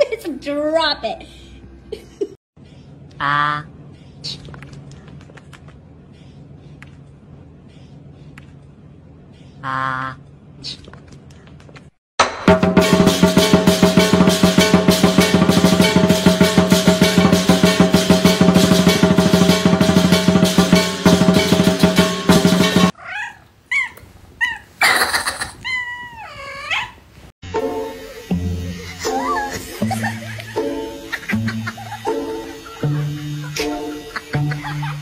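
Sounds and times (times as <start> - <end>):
fast beat background music: 12.2 - 22.9
cat meowing: 23.0 - 27.0.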